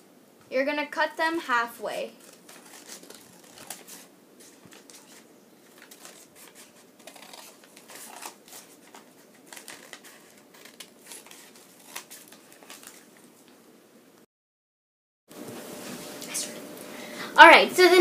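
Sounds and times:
paper rustling: 2.1s - 13.6s
scissors snipping paper: 2.2s - 13.1s.

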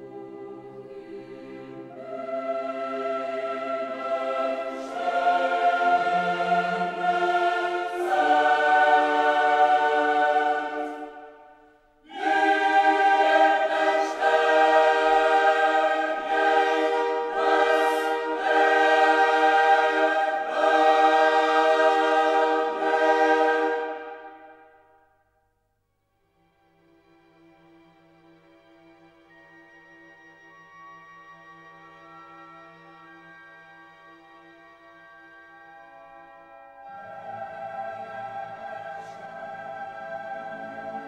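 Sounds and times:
choir singing slow chords: 0.0s - 25.2s, 36.2s - 41.0s.

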